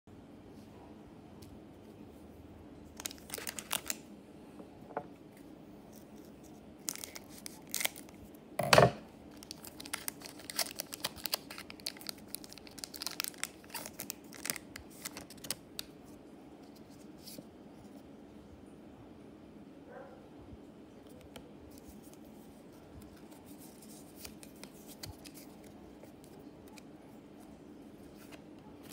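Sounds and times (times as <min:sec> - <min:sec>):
foil pack tearing: 0:03.0 - 0:04.0, 0:06.8 - 0:08.2, 0:09.3 - 0:15.6
foil pack crinkling: 0:03.0 - 0:04.1, 0:06.8 - 0:08.2, 0:09.3 - 0:15.9, 0:23.0 - 0:26.8.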